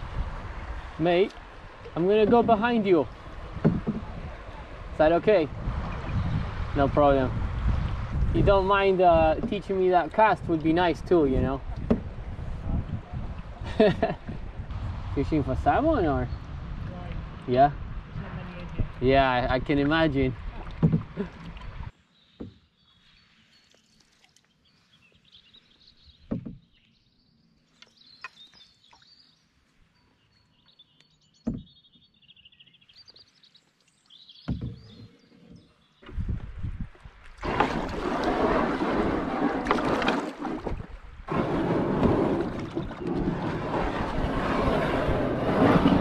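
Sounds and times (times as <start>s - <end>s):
canoe hull scraping over gravel: 1.9s - 5.4s, 37.4s - 46.0s
faint birdsong: 16.0s - 16.6s, 20.7s - 36.4s
soft water splashes: 18.3s - 21.9s, 23.3s - 25.1s, 36.0s - 44.6s.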